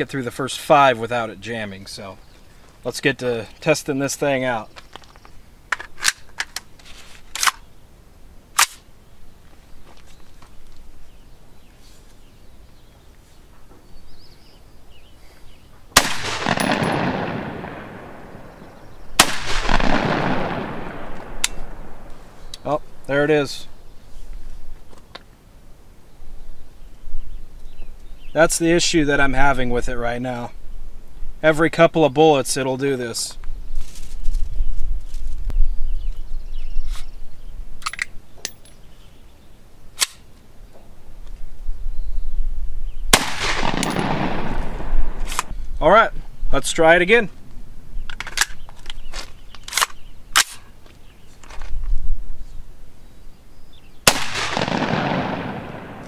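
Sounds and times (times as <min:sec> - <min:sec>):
gunshots with long echo: 0:16.0 - 0:22.3, 0:43.1 - 0:45.4, 0:54.0 - 0:56.0
wind rumble on microphone: 0:33.4 - 0:37.8, 0:41.0 - 0:46.7, 0:51.6 - 0:53.0
metallic clicks of pistol handling: 0:37.8 - 0:38.8, 0:48.1 - 0:50.7.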